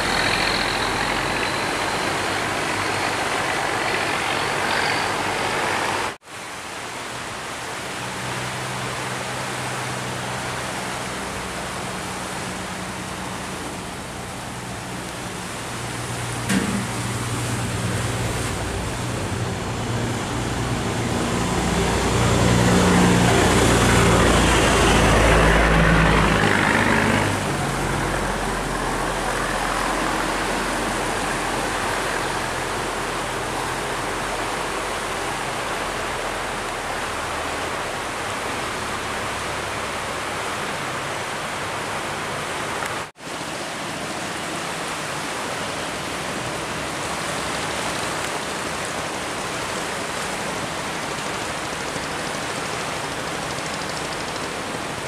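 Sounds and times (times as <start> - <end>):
barge engine running: 0.0 - 6.2, 8.0 - 42.7
water rushing along hull: 0.0 - 55.0.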